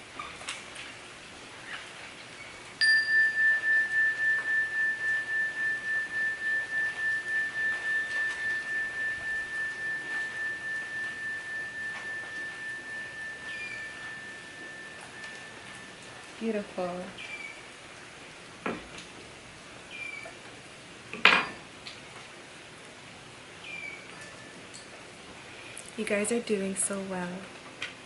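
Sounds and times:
metal chime ringing: 2.8s - 17.6s.

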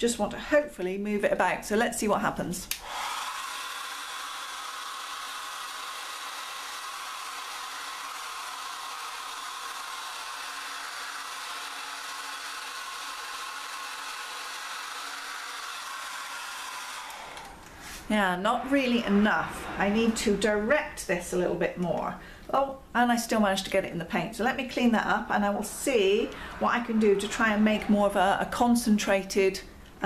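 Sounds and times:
hair dryer blowing air: 2.7s - 21.4s, 24.7s - 28.7s
faint motor whine: 2.8s - 22.5s, 24.8s - 30.0s.

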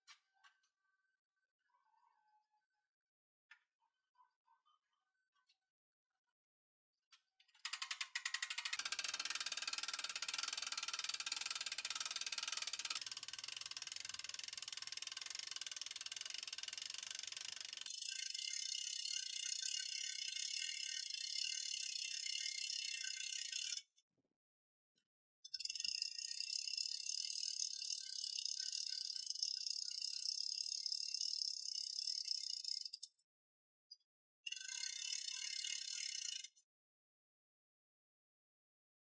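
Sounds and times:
hand winch ratchet clicking: 7.6s - 23.7s.

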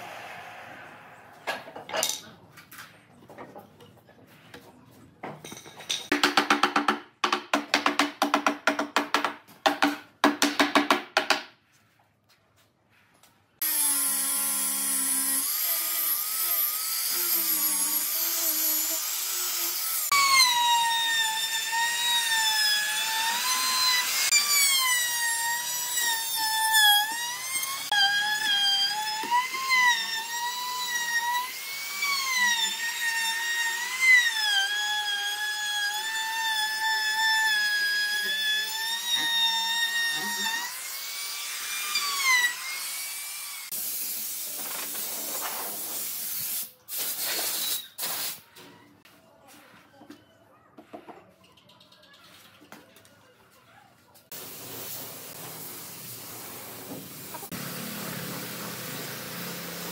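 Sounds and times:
rotary tool whining on wood: 13.6s - 43.7s
angle grinder sanding wood: 54.4s - 59.9s.

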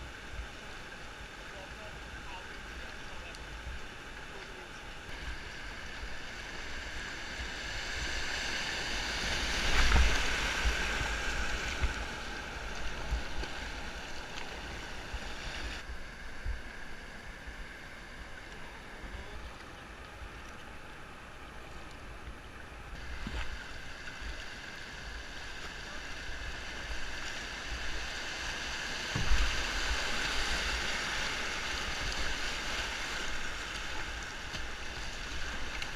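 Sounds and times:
paddle splashes: 0.3s - 16.7s, 18.1s - 35.9s
whitewater river rushing: 0.5s - 16.2s, 23.0s - 35.9s
wind on microphone: 5.1s - 16.9s.

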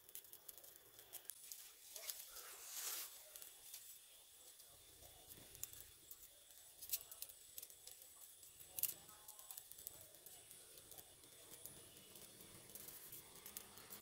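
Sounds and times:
sharp snaps of burning twigs: 0.0s - 14.0s
twigs crackling in fire: 0.0s - 14.0s.

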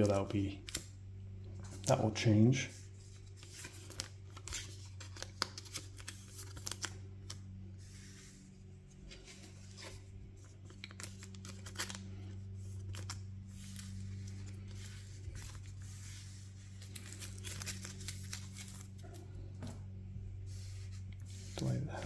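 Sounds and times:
steady low hum: 0.0s - 22.0s
cards sliding and rustling: 2.7s - 19.0s, 20.5s - 21.8s.

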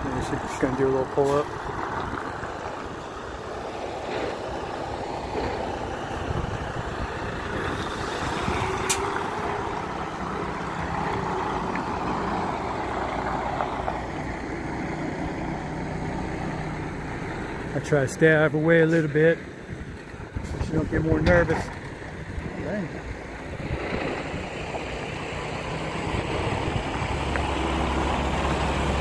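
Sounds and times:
diesel truck engine running: 0.0s - 29.0s.

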